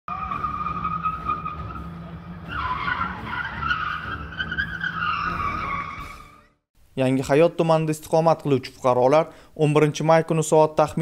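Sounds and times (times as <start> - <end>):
car engine rumbling: 0.1 - 6.2
tyres squealing: 0.1 - 6.5.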